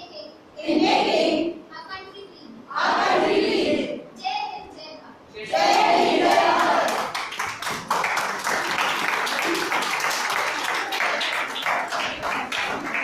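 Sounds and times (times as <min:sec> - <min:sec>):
crowd clapping: 0:05.7 - 0:13.0.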